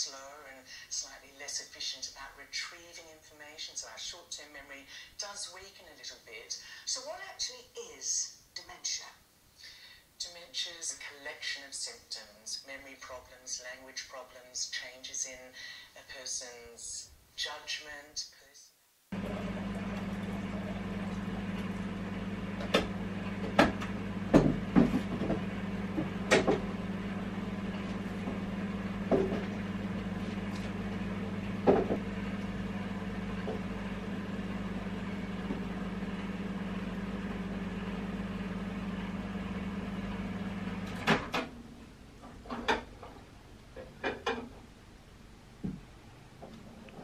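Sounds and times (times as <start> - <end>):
microwave oven humming: 19.1 - 42.9.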